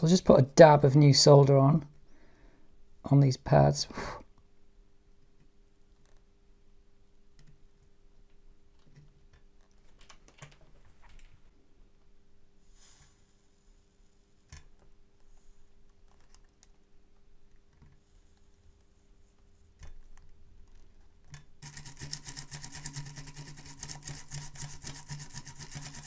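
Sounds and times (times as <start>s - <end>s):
rapid mechanical buzz with hum: 21.6s - 26.0s.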